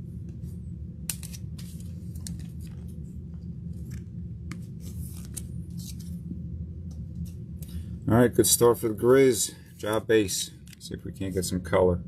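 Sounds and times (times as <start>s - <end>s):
steady low hum: 0.0s - 12.0s
cards clicking and rustling: 1.1s - 2.9s, 3.8s - 6.1s.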